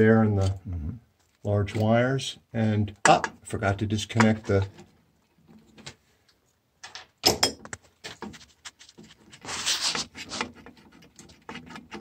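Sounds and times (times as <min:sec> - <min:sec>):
rustling scrape: 0:08.0 - 0:12.0.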